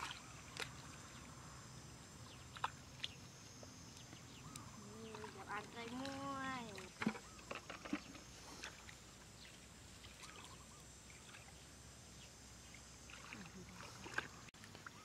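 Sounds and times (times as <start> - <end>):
hands sloshing in muddy water: 0.0 - 1.1, 13.0 - 15.0
sharp splashes: 13.0 - 15.0.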